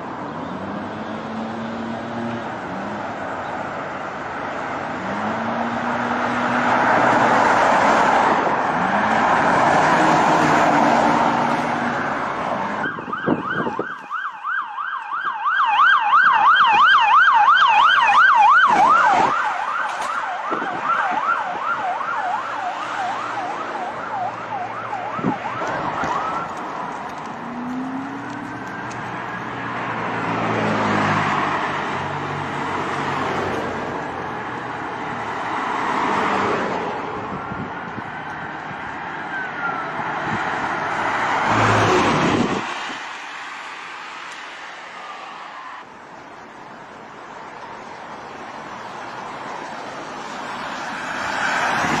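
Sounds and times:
rushing road noise: 0.0s - 52.0s
police siren yelping: 11.5s - 29.8s, 39.1s - 40.2s.

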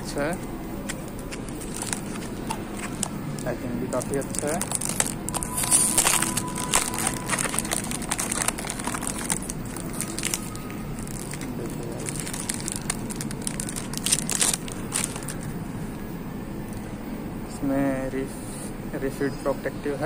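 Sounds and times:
plastic wrapper crinkling: 1.1s - 15.5s.

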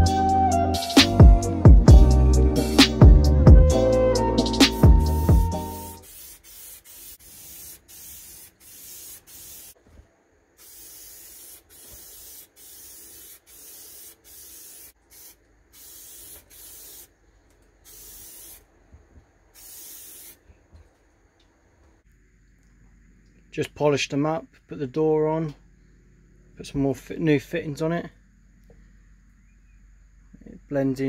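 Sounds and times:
spray-paint can hissing: 4.2s - 9.8s, 10.6s - 17.2s, 17.8s - 18.7s, 19.5s - 20.5s.

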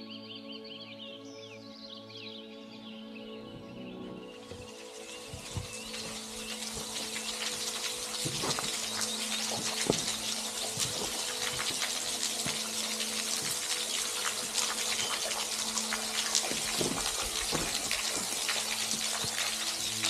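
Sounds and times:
soft ambient music: 0.0s - 20.0s
steady rushing hiss: 4.5s - 20.0s.

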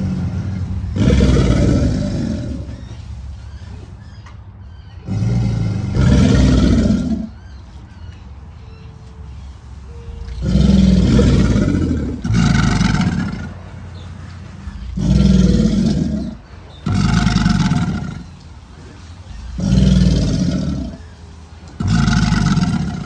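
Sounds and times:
alligators bellowing: 0.0s - 3.0s, 5.0s - 7.4s, 10.2s - 18.4s, 19.3s - 21.1s, 21.8s - 23.0s.

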